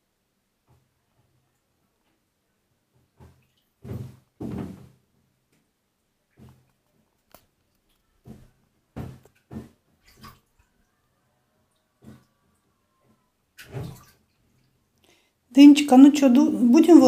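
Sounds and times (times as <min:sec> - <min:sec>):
child splashing bathwater: 0:07.8 - 0:14.8.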